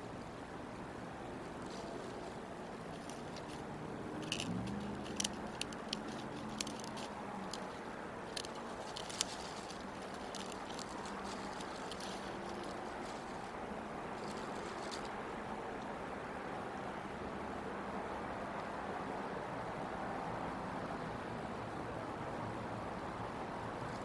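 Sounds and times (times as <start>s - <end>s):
outdoor noise wash: 0.0s - 24.0s
sticks crackling and snapping: 1.5s - 15.2s.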